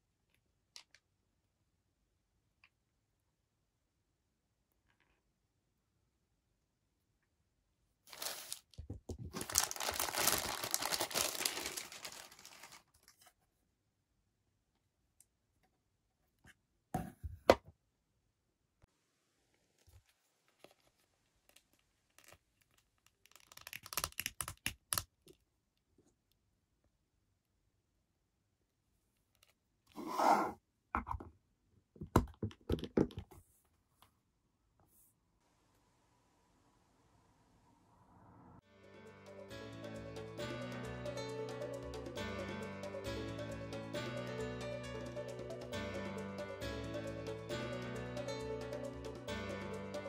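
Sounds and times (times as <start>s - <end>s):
plastic bag crinkling: 8.1s - 13.2s
plastic scraping rub: 29.9s - 30.6s.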